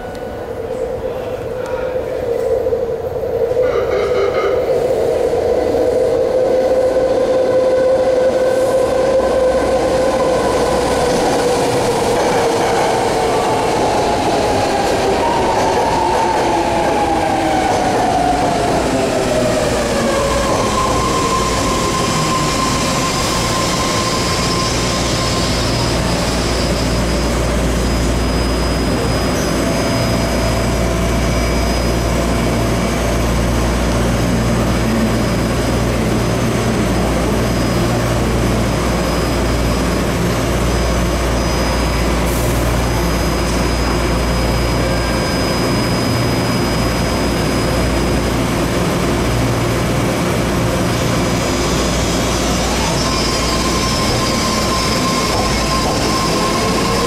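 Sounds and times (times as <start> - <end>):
low hum of standing train: 0.0 - 57.0
train whine falling in pitch: 51.1 - 57.0.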